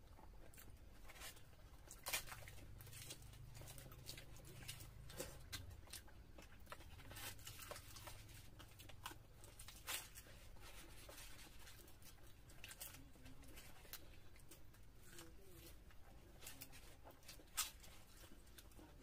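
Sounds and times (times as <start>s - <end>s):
bread torn and chewed: 0.0s - 19.0s.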